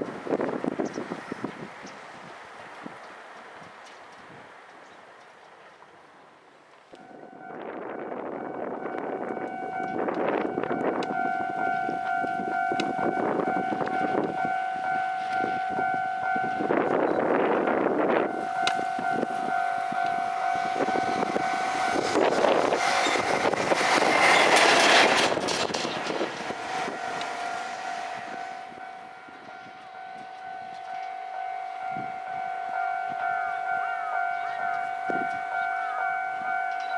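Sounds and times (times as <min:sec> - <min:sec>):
wind gusts on microphone: 0:00.0 - 0:04.6, 0:06.9 - 0:30.9, 0:31.8 - 0:32.3
electric freight train passing: 0:00.0 - 0:36.9
steady high tone: 0:07.0 - 0:36.9.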